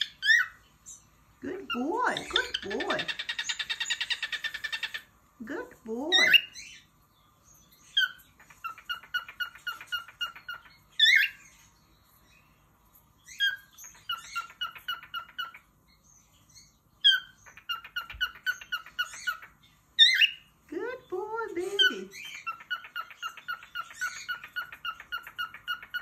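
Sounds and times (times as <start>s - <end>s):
cockatiel chirping: 0.0s - 0.6s, 2.2s - 5.1s, 7.8s - 11.6s, 13.2s - 15.7s, 16.4s - 20.5s, 22.1s - 26.0s.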